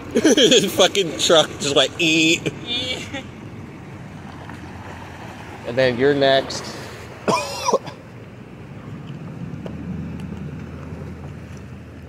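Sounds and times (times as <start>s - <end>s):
distant vehicle engine rumbling: 0.0s - 12.0s.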